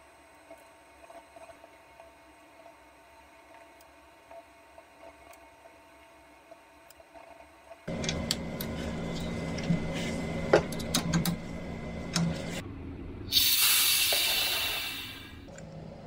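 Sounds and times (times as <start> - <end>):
steady hum: 7.9 - 16.0
loud hiss of air venting: 13.3 - 15.4.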